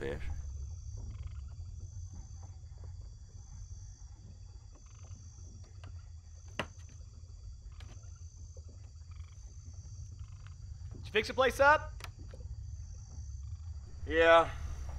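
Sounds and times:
low rumble: 0:00.0 - 0:04.4, 0:12.2 - 0:14.9
frogs croaking: 0:00.0 - 0:14.9
insects trilling: 0:00.0 - 0:14.9.

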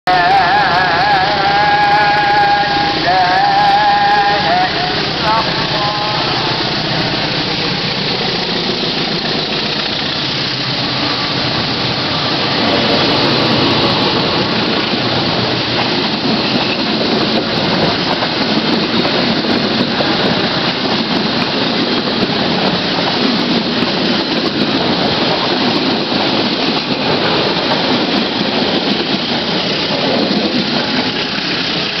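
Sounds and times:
diesel locomotive engine running: 0:00.1 - 0:32.0
train wheels clattering on rails: 0:00.1 - 0:32.0.

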